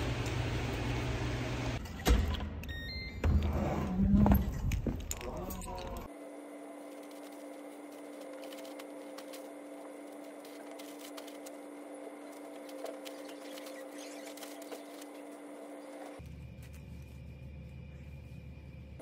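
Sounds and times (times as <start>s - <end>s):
steady low hum: 4.2s - 19.0s
plastic bag rustling: 6.8s - 17.2s.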